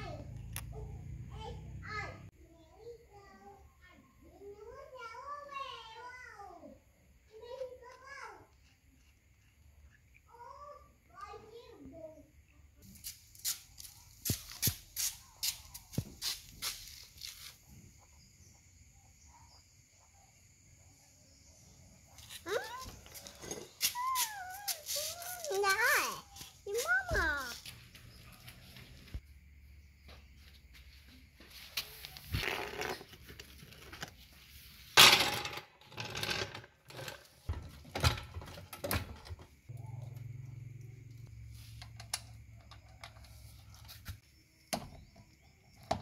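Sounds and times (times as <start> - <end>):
insect chirring: 7.3 - 30.4, 39.1 - 46.0
floor jack wheeled on concrete: 22.2 - 29.2, 31.8 - 40.3.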